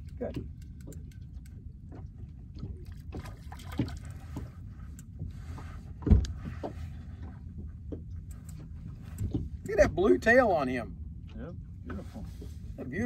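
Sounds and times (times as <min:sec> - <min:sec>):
fish thrashing in water: 0:02.6 - 0:04.6.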